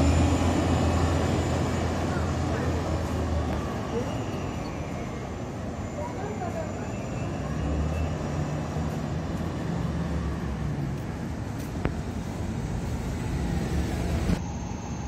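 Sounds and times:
bus engine drone: 0.0 - 15.0
road noise: 0.0 - 15.0.

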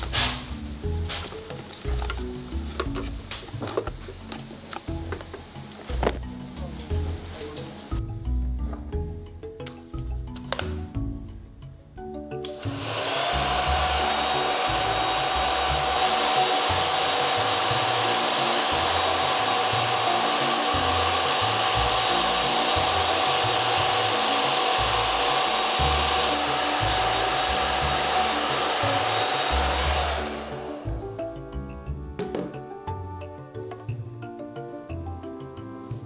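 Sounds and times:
hair dryer running: 12.4 - 31.4.

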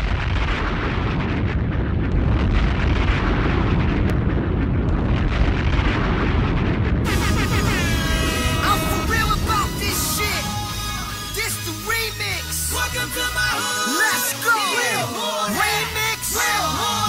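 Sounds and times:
loud distorted crowd roar: 7.0 - 13.4.

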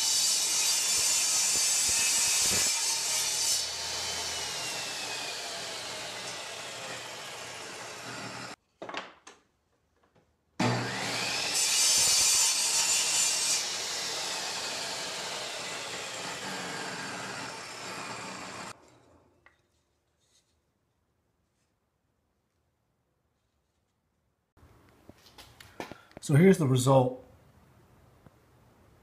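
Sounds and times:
saw blade cutting wood: 0.0 - 8.6, 10.6 - 18.9
table saw running: 0.0 - 8.6, 10.6 - 18.8.

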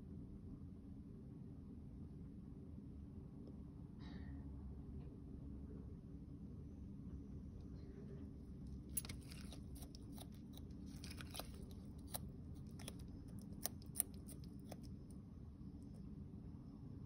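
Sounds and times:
lizard crunching vegetables: 8.6 - 15.2.

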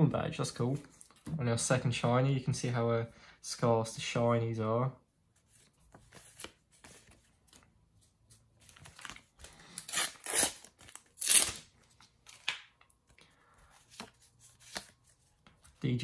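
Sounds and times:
foil packet tearing: 9.6 - 11.7.

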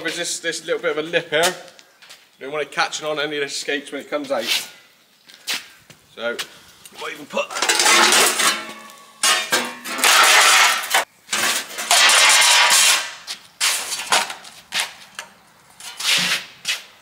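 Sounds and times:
steel plates clanging on concrete: 7.5 - 14.4.

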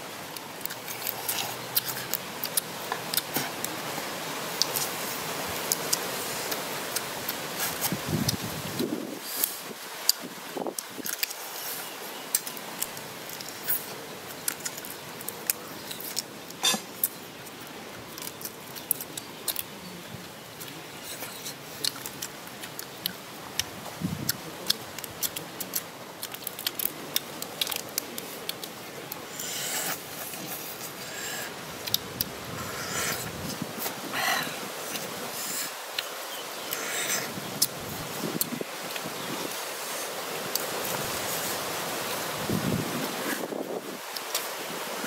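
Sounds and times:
chewing and mouth sounds: 20.6 - 39.2
shrimp shells cracking: 25.2 - 28.8.

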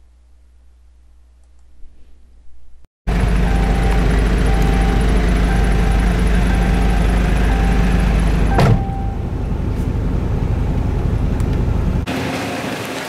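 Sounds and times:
engine low rumble: 0.0 - 12.2
hissy street noise: 3.1 - 13.0.

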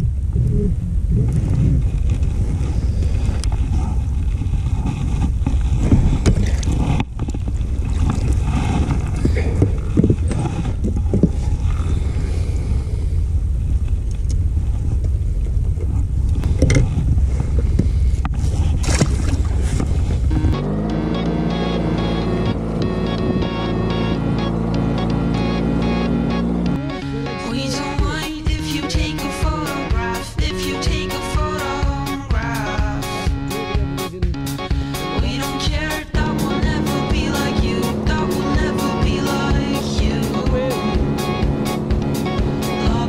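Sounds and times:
steady low rumble: 0.0 - 43.0
background music: 20.3 - 43.0.

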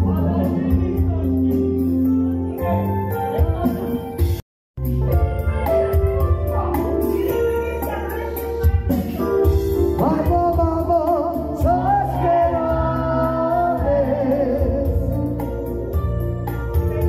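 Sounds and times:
man singing into a microphone: 0.0 - 1.8, 9.9 - 16.0
live band playing: 0.0 - 17.0.

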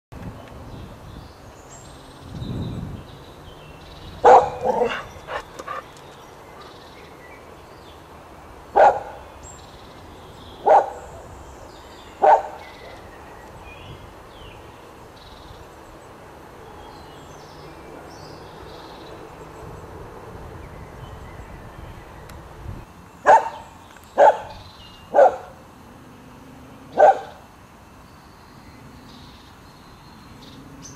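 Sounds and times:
dog barking: 4.2 - 5.8, 8.8 - 9.2, 10.6 - 11.1, 12.2 - 13.0, 23.3 - 23.6, 24.2 - 25.6, 27.0 - 27.4.

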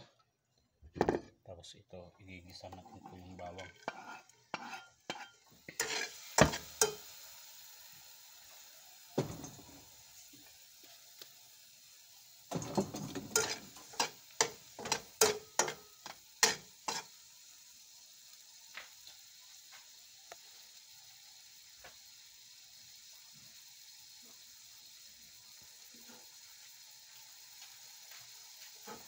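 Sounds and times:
garlic sizzling in oil: 2.4 - 29.0
spatula scraping and tapping wok: 2.5 - 7.2, 12.5 - 17.2, 25.9 - 29.0.

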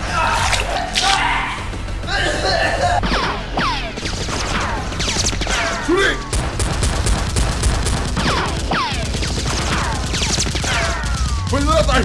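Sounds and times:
person shouting: 0.0 - 3.0
machine-gun fire: 3.1 - 12.0.

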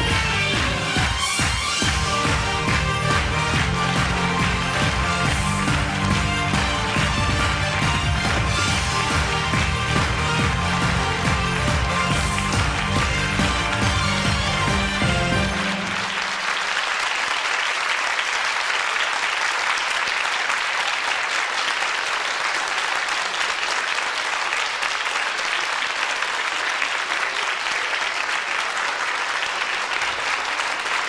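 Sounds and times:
music: 0.0 - 16.7
audience applauding: 0.0 - 31.0.

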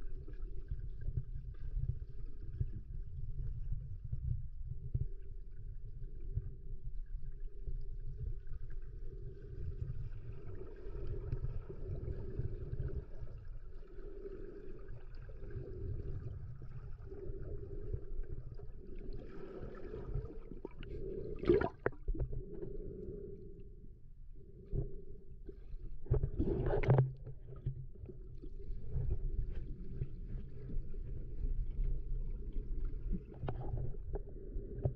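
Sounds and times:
underwater rumble of moving water: 0.0 - 34.9
faint hum: 3.4 - 34.9.

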